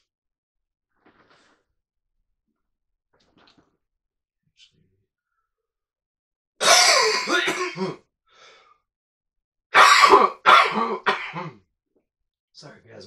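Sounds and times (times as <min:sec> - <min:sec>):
man clearing throat: 0:06.6 - 0:08.0, 0:09.8 - 0:11.6
man coughing: 0:06.6 - 0:08.0, 0:09.8 - 0:11.6.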